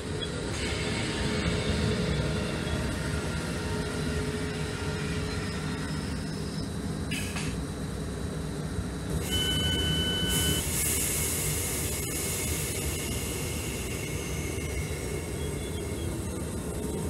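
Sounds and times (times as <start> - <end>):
electric train hum: 0.0 - 17.0
train doors hissing shut: 7.1 - 7.6, 9.2 - 15.2
two-pitch door warning beep: 9.2 - 10.7.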